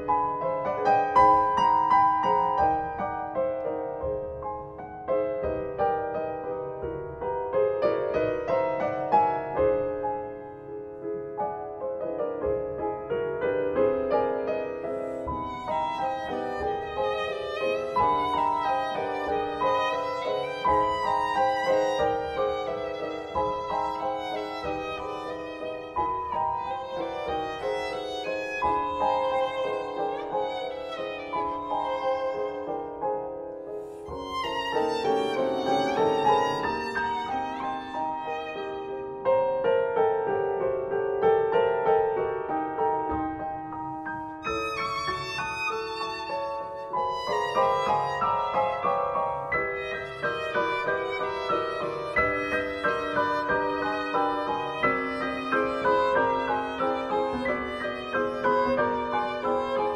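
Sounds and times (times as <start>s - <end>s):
grand piano chords: 0.0s - 59.9s
violin melody with vibrato: 14.6s - 39.6s, 44.4s - 59.9s.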